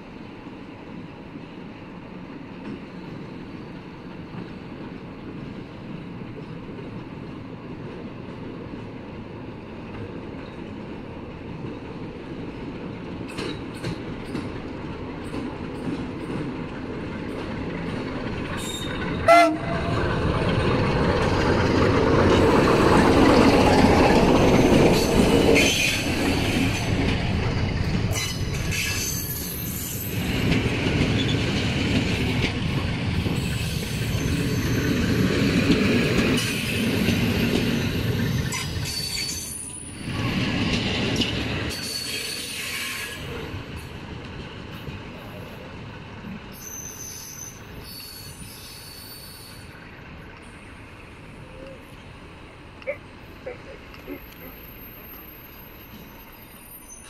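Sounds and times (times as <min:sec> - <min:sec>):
locomotive engine and wheels: 0:00.0 - 0:57.0
wheels clicking over rail joints: 0:09.8 - 0:33.5
high wheel squeals: 0:18.6 - 0:19.6, 0:33.4 - 0:35.2, 0:46.5 - 0:49.7, 0:54.2 - 0:57.0
train horn blast: 0:19.2 - 0:20.0.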